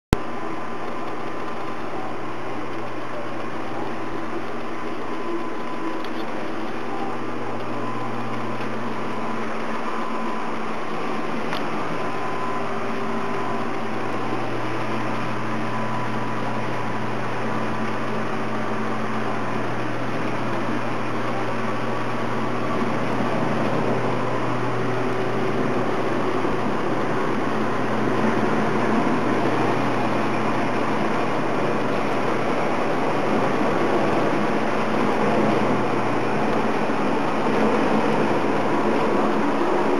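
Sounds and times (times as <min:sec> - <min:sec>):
machine hum and whir: 0:00.1 - 0:39.9.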